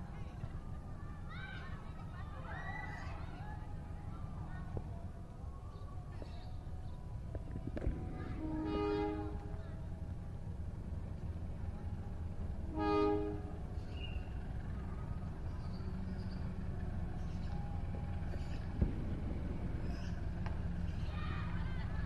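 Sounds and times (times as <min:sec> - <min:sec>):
train low rumble: 0:00.0 - 0:22.0
locomotive horn blast: 0:08.4 - 0:09.6, 0:12.6 - 0:13.7.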